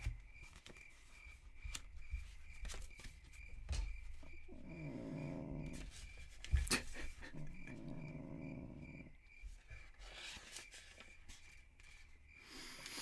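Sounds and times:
cat growling low yowl: 0:04.4 - 0:05.9, 0:06.8 - 0:09.2.

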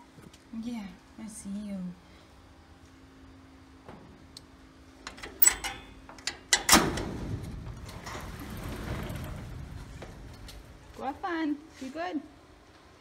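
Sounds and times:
door rattling: 0:05.1 - 0:11.2.

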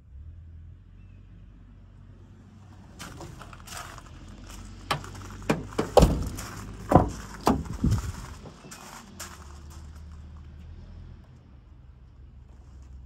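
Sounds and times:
truck doors and latches clunking: 0:04.8 - 0:08.6.

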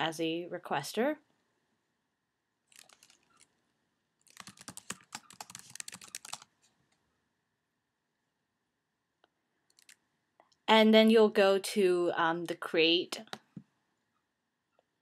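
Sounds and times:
typing on a computer keyboard: 0:02.7 - 0:03.5, 0:04.2 - 0:06.5, 0:09.7 - 0:10.0.

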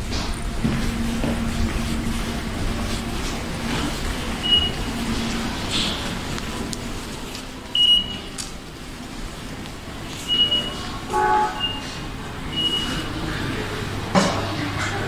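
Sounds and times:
station background hum: 0:00.0 - 0:15.0
card reader beep: 0:04.4 - 0:05.0, 0:07.7 - 0:08.4, 0:10.2 - 0:13.1.

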